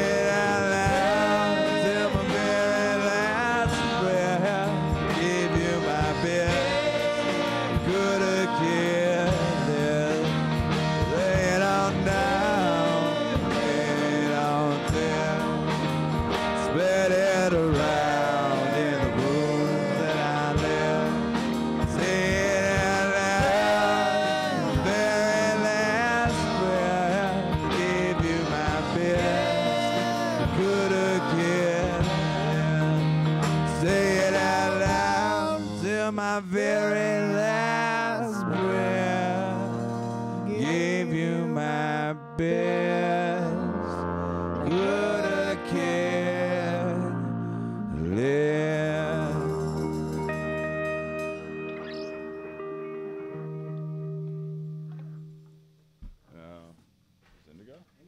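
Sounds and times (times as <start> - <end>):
voices singing: 0.0 - 53.8
electric guitars: 0.0 - 56.2
bowed electric string instrument: 42.4 - 55.5.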